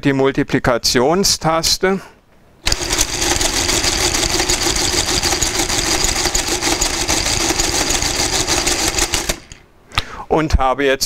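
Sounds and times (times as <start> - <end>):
calculator motor humming: 2.7 - 9.6
gear train clattering: 2.7 - 9.7.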